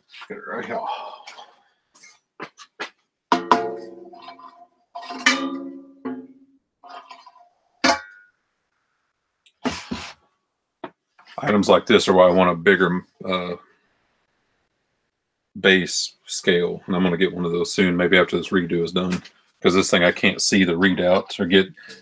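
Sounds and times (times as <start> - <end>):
metal piece clanging: 3.3 - 6.3.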